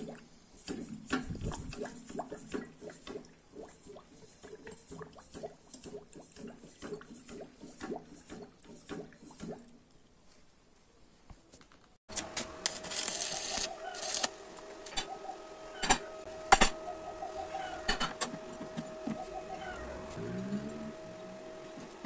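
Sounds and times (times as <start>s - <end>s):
steady whine: 12.1s - 22.0s
welding arc crackling and hissing: 12.6s - 14.4s.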